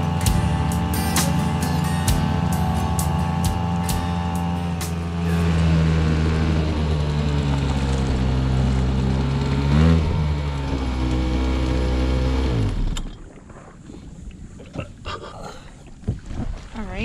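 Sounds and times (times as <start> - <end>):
faint water: 0.0 - 17.0
outboard motor running: 0.0 - 17.0
wind: 0.0 - 17.0.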